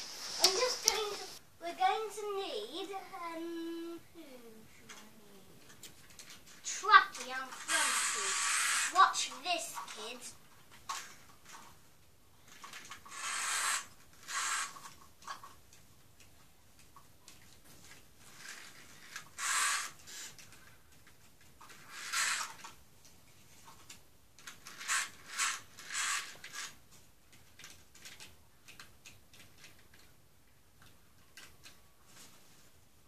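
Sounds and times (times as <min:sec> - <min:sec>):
hissy scraping bursts: 0:00.0 - 0:01.4, 0:06.7 - 0:10.2, 0:18.4 - 0:20.4
plastic toys clicking and clattering: 0:00.4 - 0:01.2, 0:04.8 - 0:11.8, 0:12.4 - 0:31.8.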